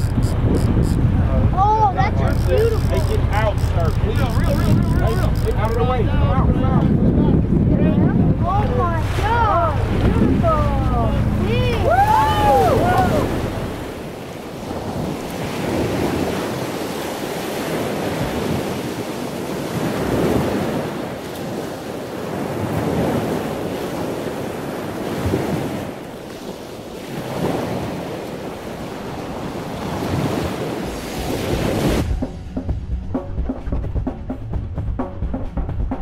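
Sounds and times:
ocean waves: 0.0s - 33.8s
wind: 0.0s - 36.0s.

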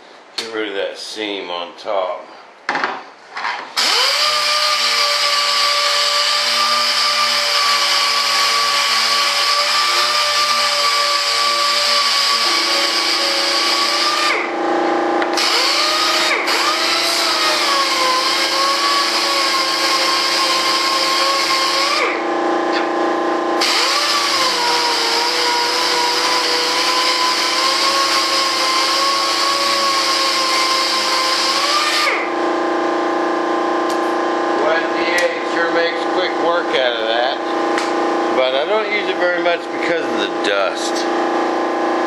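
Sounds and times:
power sander whining: 3.8s - 14.5s, 15.3s - 22.2s, 23.6s - 32.3s.

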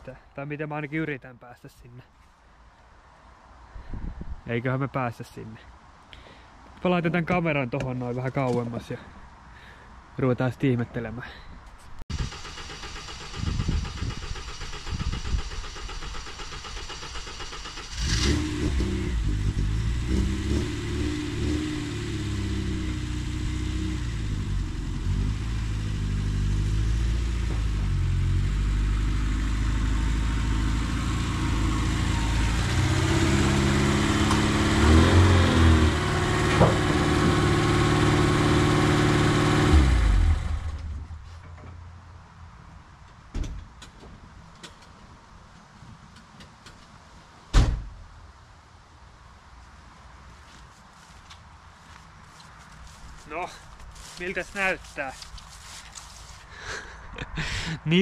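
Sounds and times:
car engine starting and revving: 12.1s - 41.2s.

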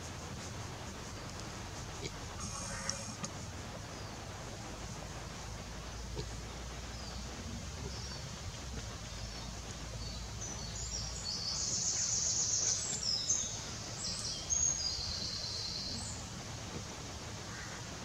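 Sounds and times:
low outdoor rumble: 0.0s - 18.0s
small bird singing: 5.9s - 16.3s.

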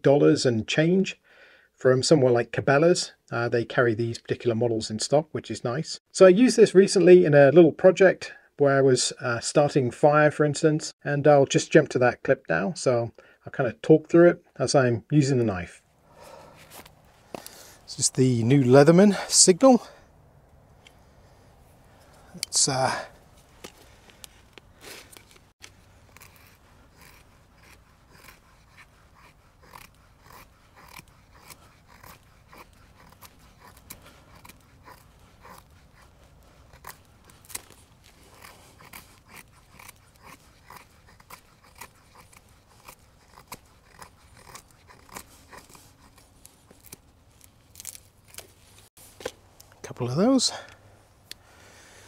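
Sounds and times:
knife scraping wood: 23.3s - 49.4s.

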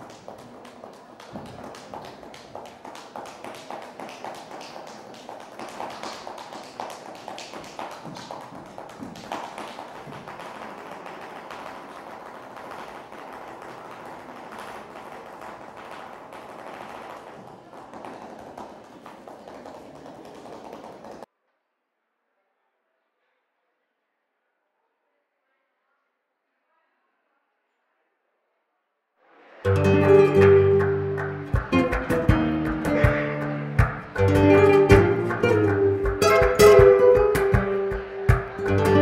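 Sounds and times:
shoes tapping and stamping on floor: 0.0s - 21.3s.

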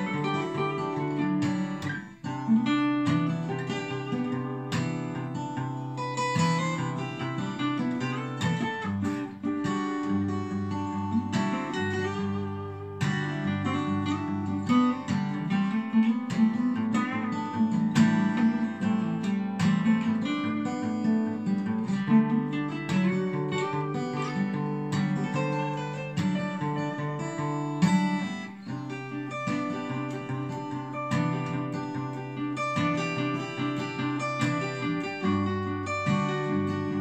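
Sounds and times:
acoustic guitar chords: 0.0s - 37.0s
guitar picking melody: 0.0s - 37.0s.

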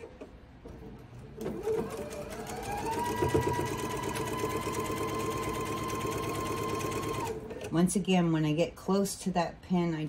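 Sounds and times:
sewing machine motor whine: 1.4s - 7.7s.

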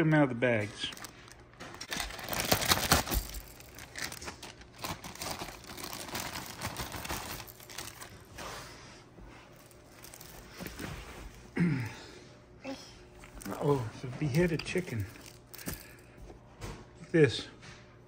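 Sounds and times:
plastic bags crinkling: 0.6s - 8.4s, 9.6s - 10.9s, 13.4s - 16.1s.

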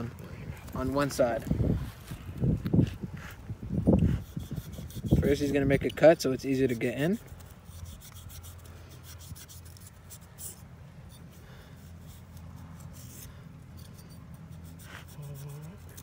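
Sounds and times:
knife scraping through shark skin: 4.0s - 16.0s.

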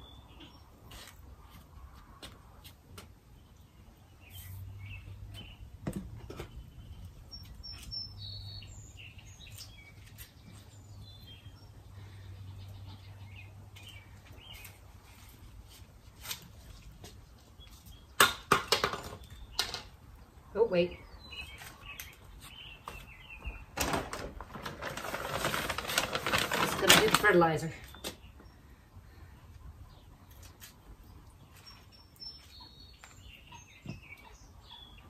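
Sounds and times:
hands working plants into soil: 0.4s - 3.6s, 9.3s - 11.5s, 13.7s - 18.2s, 20.8s - 28.6s, 30.2s - 34.3s
small birds chirping: 3.3s - 15.8s, 17.1s - 18.2s, 18.9s - 23.8s, 26.6s - 35.0s.

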